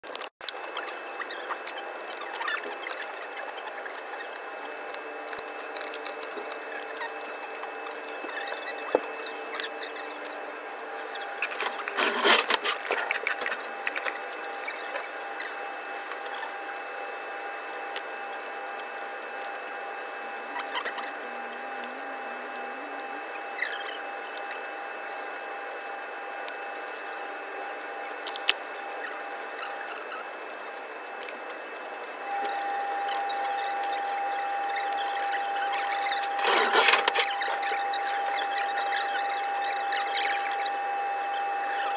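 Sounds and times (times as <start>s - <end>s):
steady hum: 0.1s - 41.9s
faint thin whine: 0.5s - 41.9s
utensils and metal trays clattering: 36.3s - 37.5s.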